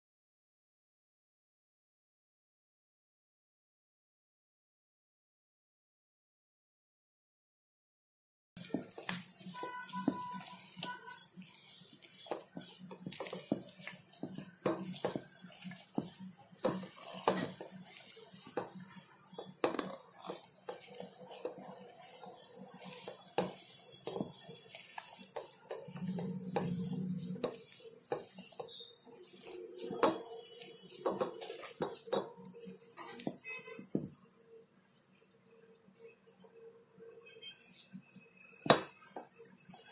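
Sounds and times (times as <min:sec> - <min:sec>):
hand kneading dough in steel bowl: 0:08.6 - 0:34.2, 0:37.6 - 0:39.9.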